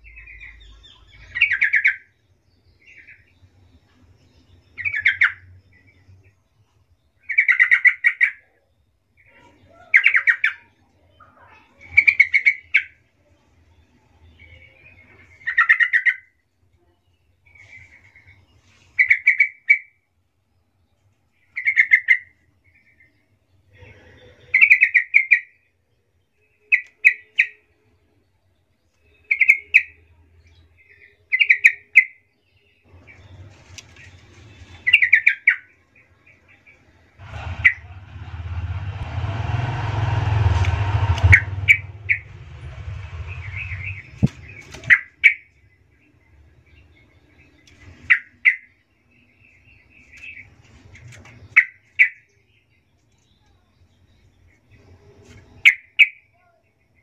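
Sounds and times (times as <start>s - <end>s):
bird chirping: 0.0s - 13.0s
rushing noise with deep rumble: 37.1s - 44.9s.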